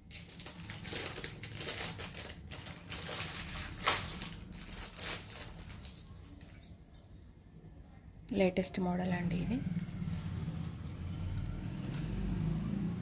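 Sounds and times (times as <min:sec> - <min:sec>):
glass bangles handled: 0:00.0 - 0:07.0.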